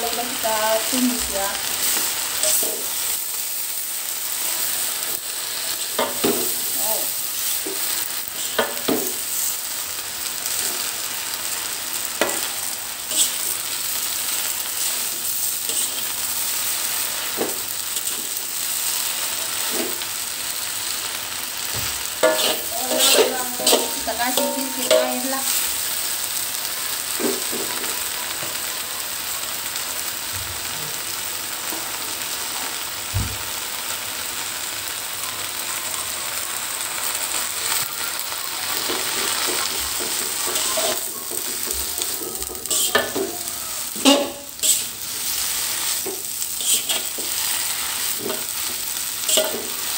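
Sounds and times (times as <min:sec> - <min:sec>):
greens sizzling in hot oil: 0:00.0 - 0:49.9
metal spatula scraping a wok: 0:12.2 - 0:17.4, 0:22.2 - 0:25.7, 0:38.7 - 0:43.2, 0:43.8 - 0:49.9.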